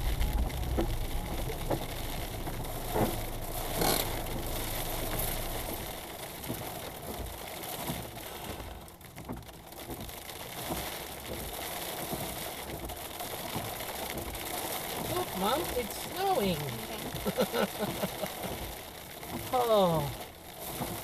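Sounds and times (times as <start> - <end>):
car engine idling: 0.0 - 12.0
hail and rain on car roof: 0.0 - 21.0
windscreen wipers sweeping: 0.0 - 21.0.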